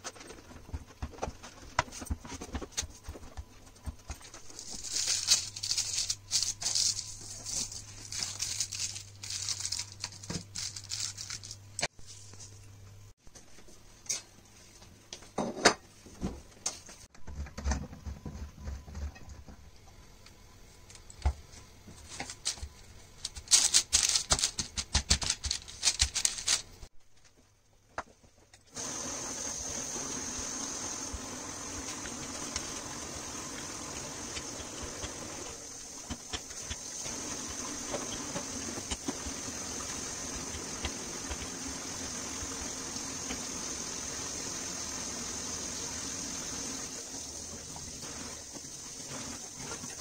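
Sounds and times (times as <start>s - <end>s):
baking paper crinkling: 0.0s - 12.6s, 20.8s - 27.4s
steady hiss and low hum: 0.0s - 50.0s.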